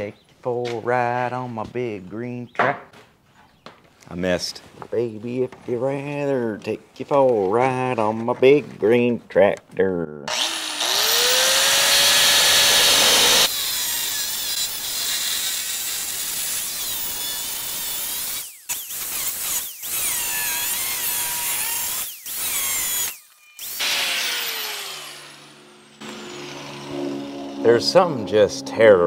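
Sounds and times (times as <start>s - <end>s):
angle grinder cutting steel: 10.3s - 29.0s.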